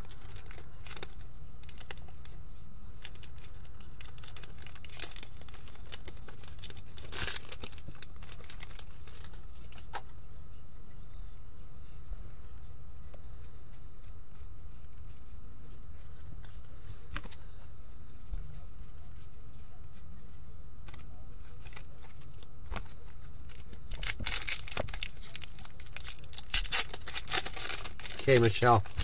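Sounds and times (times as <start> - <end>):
foil wrapper tearing and crinkling: 0.0 - 2.3, 3.0 - 10.0, 20.9 - 29.0.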